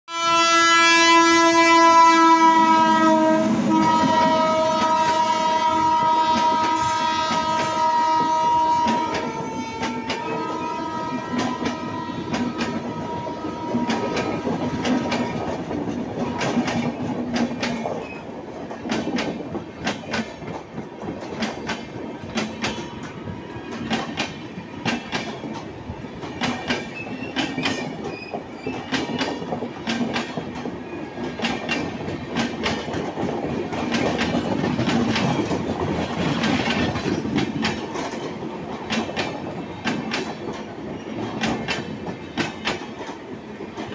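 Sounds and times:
train wheels rumbling on rail: 0.2 - 43.9.

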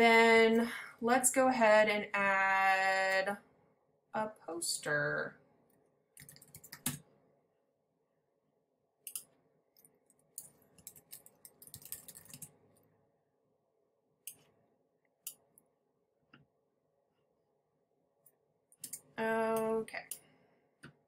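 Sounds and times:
faint keyboard typing: 6.2 - 7.1, 9.1 - 12.6.

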